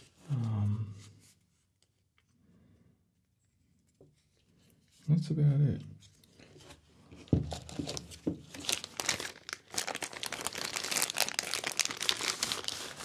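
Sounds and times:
plastic bag crinkling: 0:07.5 - 0:13.0.

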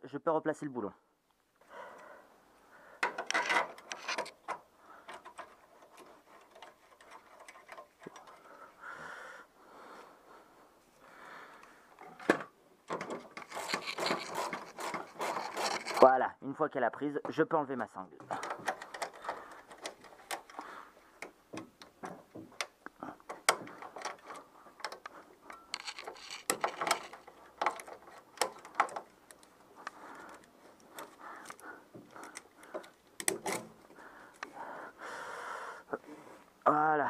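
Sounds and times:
scraping rustles: 0:03.0 - 0:08.8, 0:12.9 - 0:16.1, 0:23.3 - 0:34.2
metallic clicks of tools: 0:18.3 - 0:33.8.

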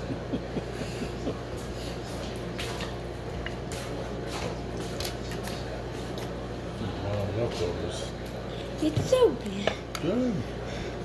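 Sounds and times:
steady low hum: 0:00.0 - 0:11.0
wet chewing and mouth sounds: 0:02.1 - 0:06.4.

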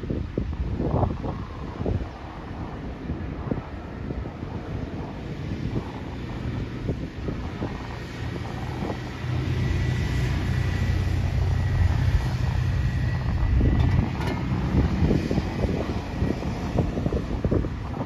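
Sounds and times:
tractor engine driving past: 0:08.4 - 0:16.8.

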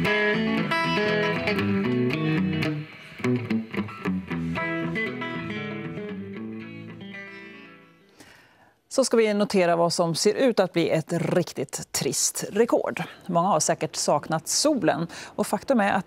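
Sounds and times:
electric guitar playing: 0:00.0 - 0:08.2.

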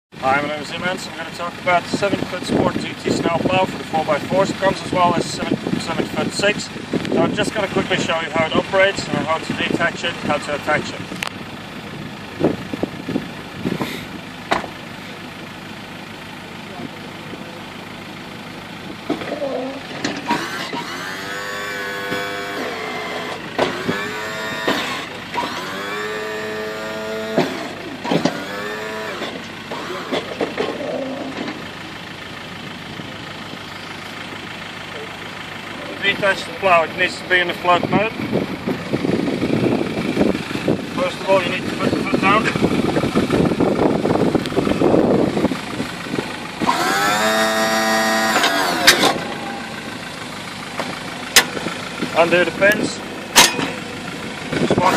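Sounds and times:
sharp clunks: 0:14.5 - 0:14.8, 0:23.2 - 0:24.0, 0:27.3 - 0:28.4, 0:48.3 - 0:49.8, 0:53.3 - 0:53.8
hydraulic pump whining: 0:18.6 - 0:54.9
electric motor whine: 0:20.2 - 0:30.3, 0:46.6 - 0:49.8
clattery rumble: 0:42.5 - 0:52.2.

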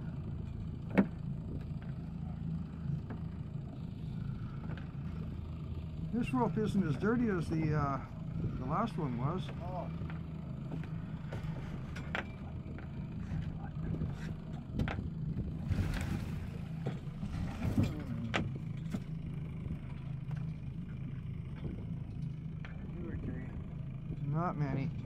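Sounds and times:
boat engine running: 0:00.0 - 0:25.0.

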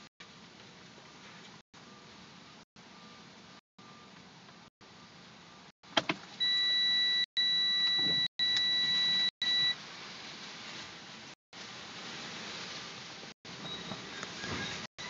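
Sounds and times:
high-pitched electronic beep: 0:06.4 - 0:09.8.

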